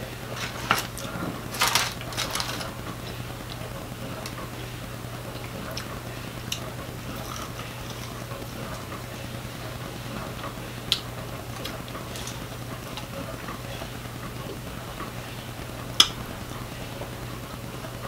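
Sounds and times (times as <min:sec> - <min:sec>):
steady low hum: 0:00.0 - 0:18.0
biting and chewing clicks: 0:05.3 - 0:08.9.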